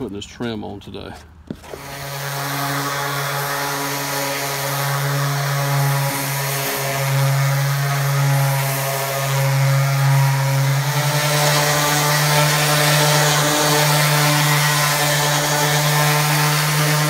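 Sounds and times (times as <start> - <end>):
orbital sander humming: 1.5 - 17.0.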